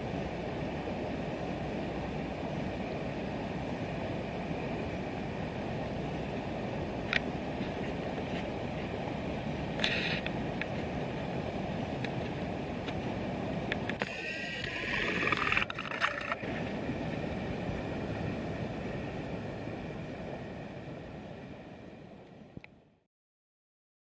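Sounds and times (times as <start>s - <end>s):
river water rushing: 0.0s - 22.2s.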